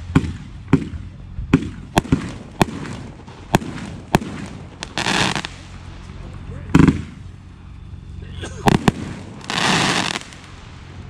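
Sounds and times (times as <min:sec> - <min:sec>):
firework bangs: 0:00.0 - 0:06.0, 0:06.7 - 0:07.4, 0:08.6 - 0:10.6.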